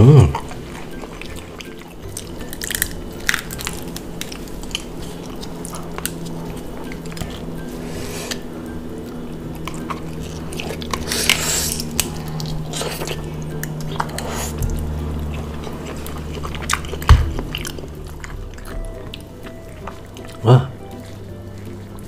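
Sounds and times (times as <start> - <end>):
chewing: 0.1 - 22.0
clam shells cracking: 2.2 - 6.3.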